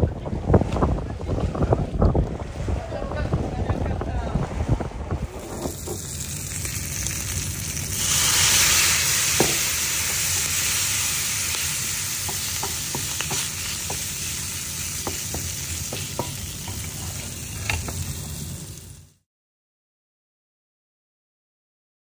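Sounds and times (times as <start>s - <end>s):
food sizzling in a pan: 5.4s - 19.2s
wooden spatula stirring: 12.2s - 14.2s.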